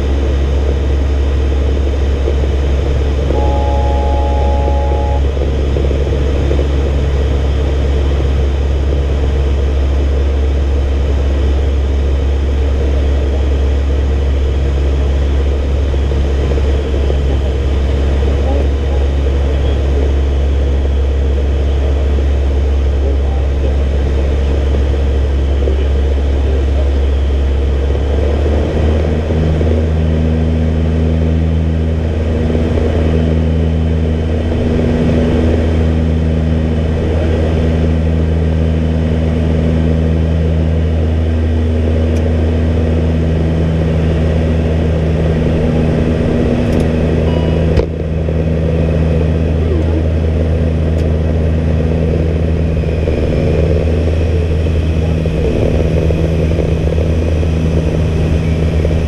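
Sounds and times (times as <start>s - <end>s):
turboprop engines droning: 0.0s - 59.0s
steady tones: 2.6s - 8.0s.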